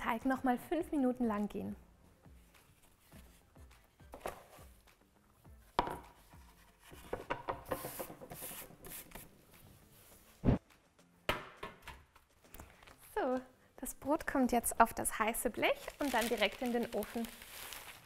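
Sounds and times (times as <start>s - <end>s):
knock on wooden board: 5.8s - 6.1s, 7.1s - 8.3s
paper rustling: 15.7s - 18.0s.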